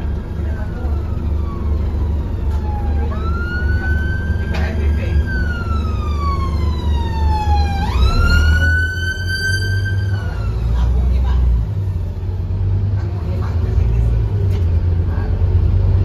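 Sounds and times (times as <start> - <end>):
emergency vehicle siren wailing: 0.0 - 12.2
bus engine rumble: 0.0 - 16.0.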